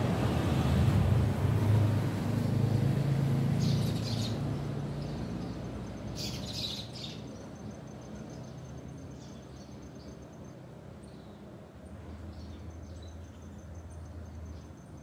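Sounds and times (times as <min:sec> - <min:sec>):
vehicle engine rumbling past: 0:00.0 - 0:06.8
small birds chirping: 0:03.6 - 0:15.0.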